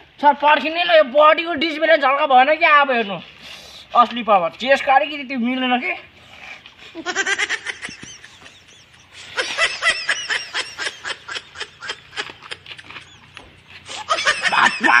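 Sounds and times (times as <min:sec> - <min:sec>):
boys laughing and giggling: 0:06.8 - 0:15.0.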